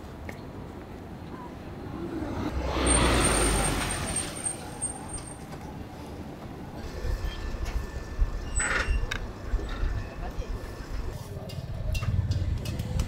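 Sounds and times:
street background noise: 0:00.0 - 0:13.0
vehicle passing on road: 0:01.7 - 0:05.9.

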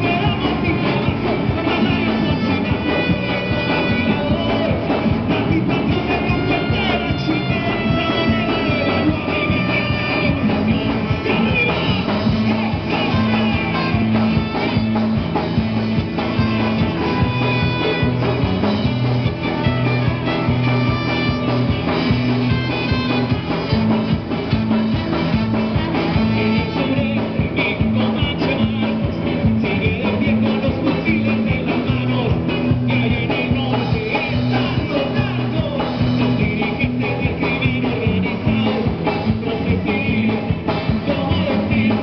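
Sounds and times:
trombone: 0:00.0 - 0:28.8
electric guitar: 0:00.0 - 0:42.0
keyboard: 0:00.0 - 0:42.0
man singing into microphone: 0:00.0 - 0:42.0
rock band playing: 0:00.0 - 0:42.0.

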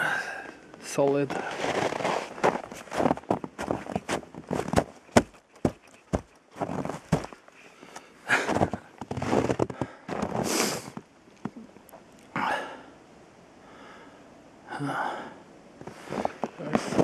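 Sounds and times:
footsteps crunching through snow: 0:01.0 - 0:07.4, 0:08.3 - 0:11.6, 0:15.8 - 0:17.0.

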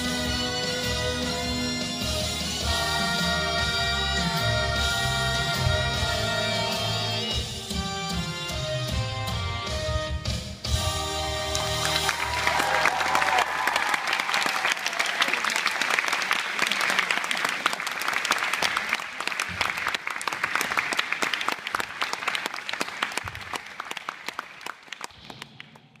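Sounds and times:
children applauding: 0:11.5 - 0:26.0.

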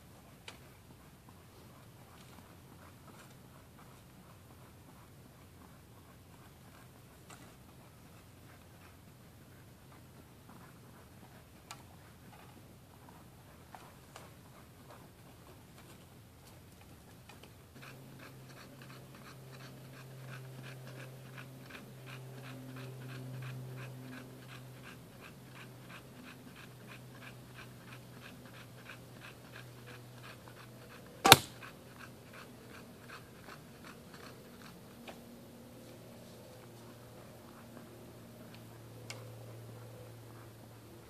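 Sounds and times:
dog panting: 0:00.2 - 0:41.0
bow being shot: 0:31.2 - 0:31.6.

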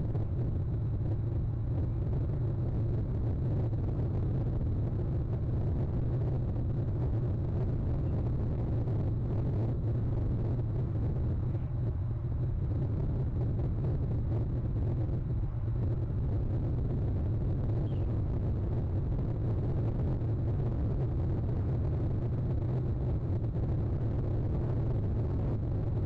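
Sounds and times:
low rumble: 0:00.0 - 0:26.0.

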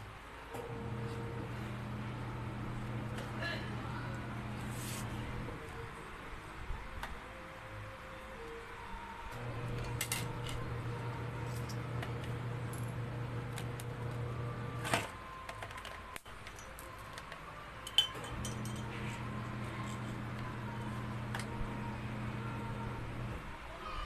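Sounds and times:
low hum: 0:00.6 - 0:05.9, 0:09.3 - 0:15.0, 0:18.2 - 0:23.5
metal parts clinking and knocking: 0:15.5 - 0:18.9.

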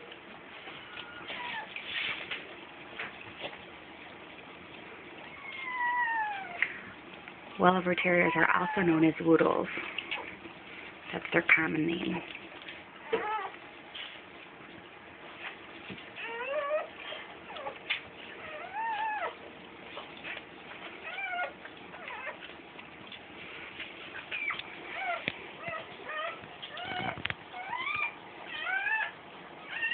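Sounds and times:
puppy crying in high squeals: 0:01.0 - 0:01.8, 0:05.3 - 0:06.6, 0:13.0 - 0:13.5, 0:16.2 - 0:17.8, 0:18.4 - 0:19.4, 0:24.3 - 0:29.9.

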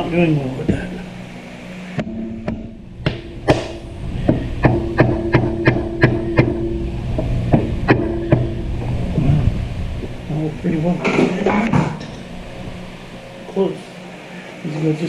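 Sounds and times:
steady low hum: 0:00.0 - 0:15.0
hammer tapping on plastic: 0:04.3 - 0:06.6.

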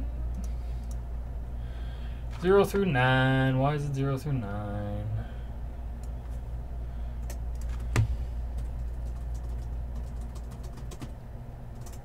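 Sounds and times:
low hum: 0:00.0 - 0:12.0
keyboard keys clicking: 0:07.2 - 0:11.1.

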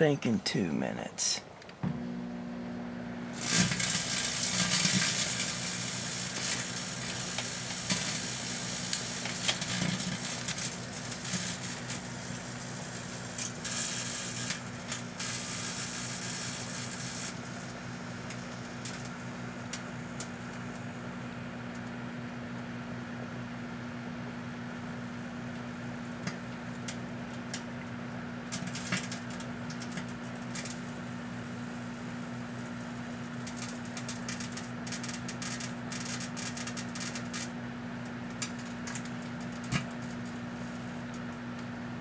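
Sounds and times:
microwave oven humming: 0:00.0 - 0:42.0
sparks crackling: 0:03.3 - 0:20.9, 0:28.4 - 0:37.6, 0:38.2 - 0:41.3.

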